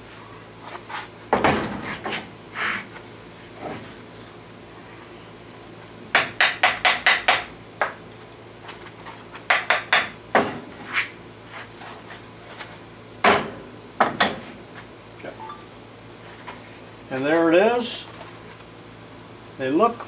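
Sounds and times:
hammer knocking on metal: 0:06.2 - 0:07.5.

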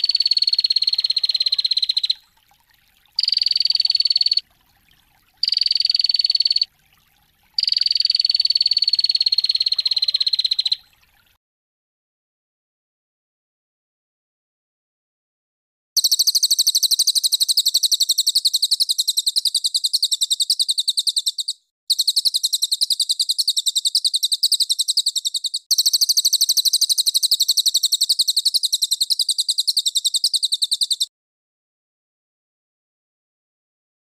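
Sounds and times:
recorded songbird call: 0:00.0 - 0:02.3, 0:03.2 - 0:04.4, 0:05.4 - 0:06.7, 0:07.6 - 0:11.0, 0:16.0 - 0:31.1.

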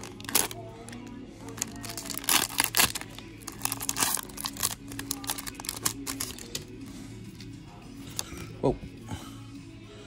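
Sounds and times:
wrapper crinkling and tearing: 0:00.0 - 0:06.7.

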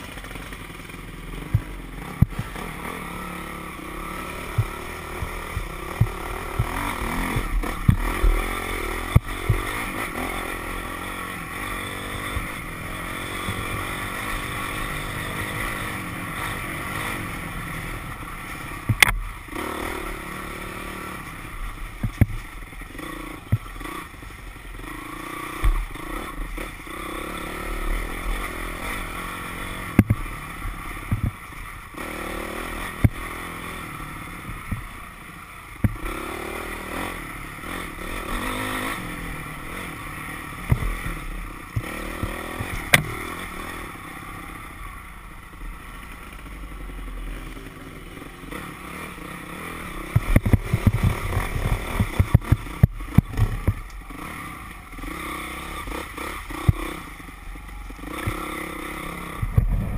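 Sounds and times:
dirt bike engine running: 0:00.0 - 0:59.9.

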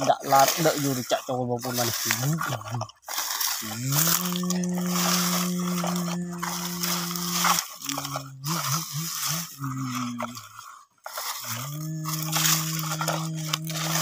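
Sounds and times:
dry leaves crunching: 0:00.0 - 0:14.0
person humming engine noise: 0:03.6 - 0:10.6, 0:11.4 - 0:14.0.

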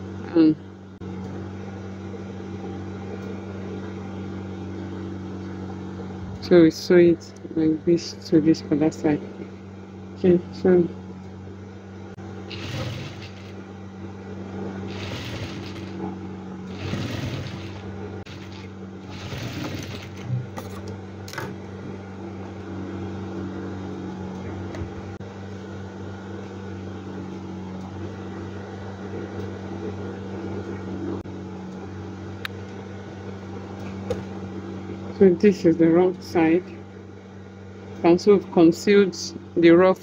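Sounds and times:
sewing machine motor humming: 0:12.2 - 0:22.5.

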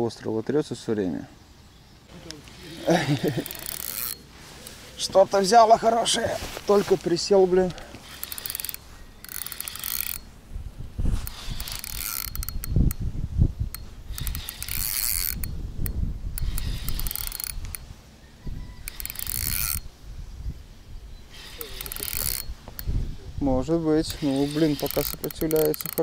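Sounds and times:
fishing reel ratcheting clicks: 0:02.3 - 0:04.8, 0:07.6 - 0:10.3, 0:11.2 - 0:13.1, 0:13.7 - 0:17.9, 0:18.8 - 0:19.9, 0:21.3 - 0:23.0, 0:23.8 - 0:26.0.

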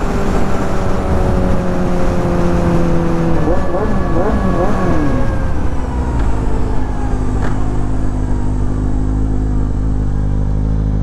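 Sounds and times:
wind rush: 0:00.0 - 0:07.0
motorcycle engine slowing: 0:00.0 - 0:11.0.

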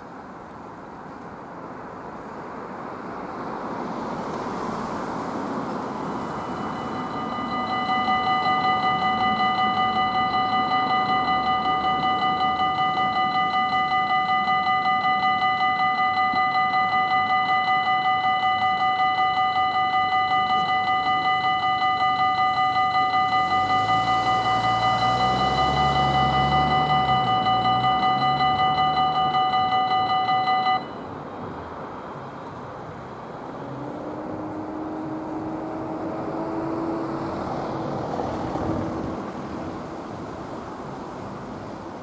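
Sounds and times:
road traffic noise: 0:00.0 - 0:42.0
level crossing warning bell: 0:06.0 - 0:31.2.

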